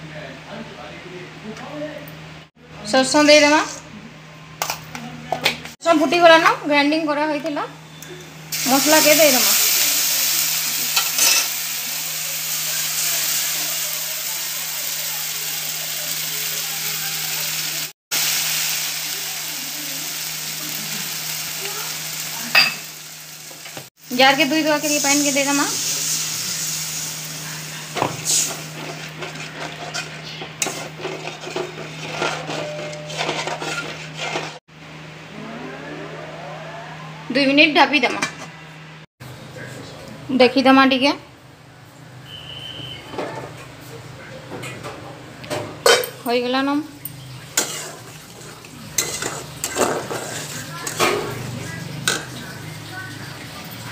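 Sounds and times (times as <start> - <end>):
paste sizzling in hot oil: 8.5 - 32.2, 47.0 - 53.9
steel spoon scraping metal pan: 11.0 - 11.6, 28.3 - 34.6, 47.6 - 51.4.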